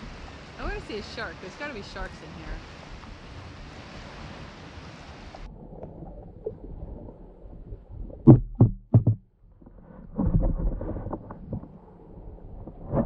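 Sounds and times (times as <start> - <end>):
water and wind hiss: 0.0 - 5.8
heavy low thumps: 8.2 - 9.3.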